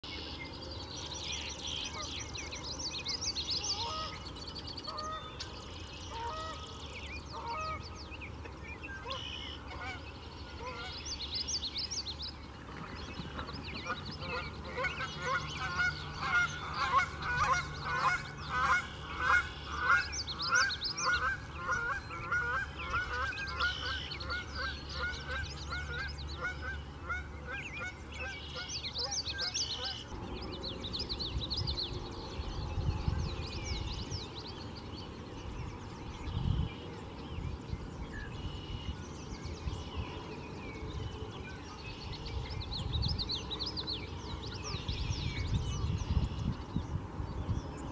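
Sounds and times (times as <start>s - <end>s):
steady low rumble: 9.6s - 47.9s.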